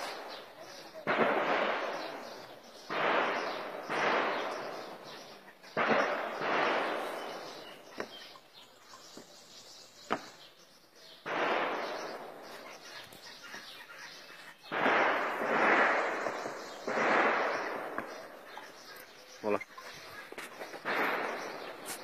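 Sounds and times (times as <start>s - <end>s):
distant heavy gunfire with echo: 0.0s - 8.1s, 11.2s - 13.0s, 14.6s - 18.8s, 20.6s - 22.0s
sharp gunshot cracks: 1.0s - 8.1s, 11.2s - 13.0s, 14.7s - 18.5s, 20.7s - 22.0s.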